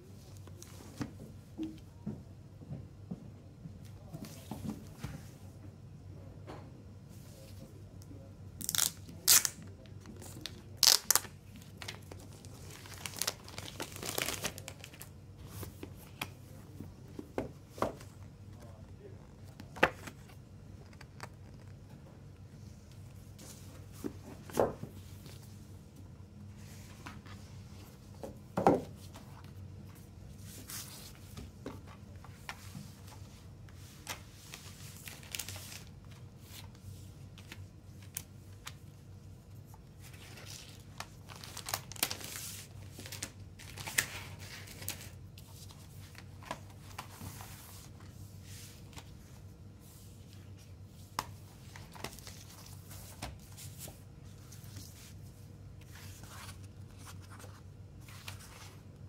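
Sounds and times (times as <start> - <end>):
plastic sleeve crinkling: 10.2 - 15.1, 40.4 - 45.1
cardboard and paper rustling: 11.5 - 21.8, 30.4 - 36.8, 40.0 - 49.4, 50.2 - 55.2, 55.8 - 58.8.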